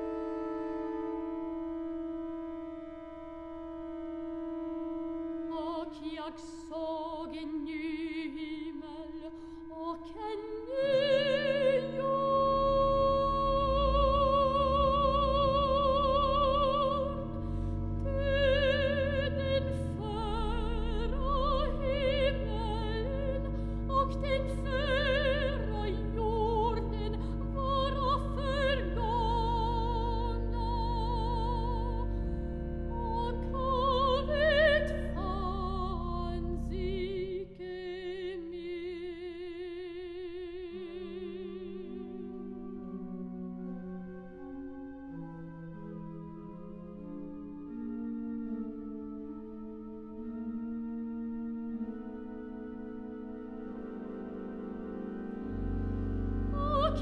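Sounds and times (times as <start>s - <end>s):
pipe organ chords: 0.0s - 6.0s, 10.6s - 37.8s, 40.9s - 57.0s
soprano singing with vibrato: 5.5s - 32.0s, 33.0s - 42.4s, 56.5s - 57.0s.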